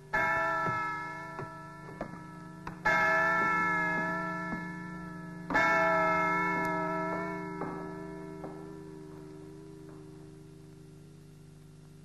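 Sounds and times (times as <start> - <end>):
large bell ringing: 0.0 - 11.6.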